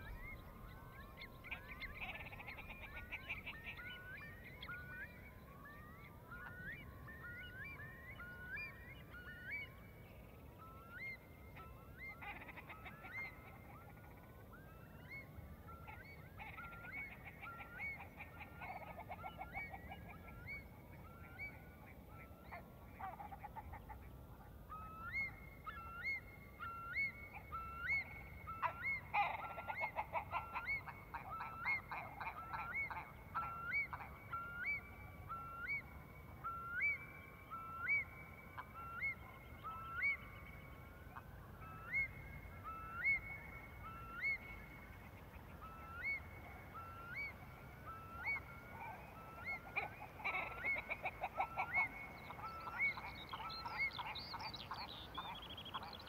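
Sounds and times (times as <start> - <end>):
birds calling: 0.0 - 56.0
rapid bird calls: 25.0 - 56.0.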